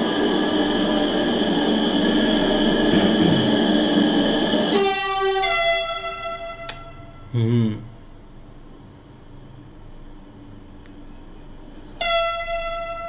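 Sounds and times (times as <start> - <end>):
train running rumble: 0.0 - 13.0
train horn: 4.7 - 7.3, 12.0 - 13.0.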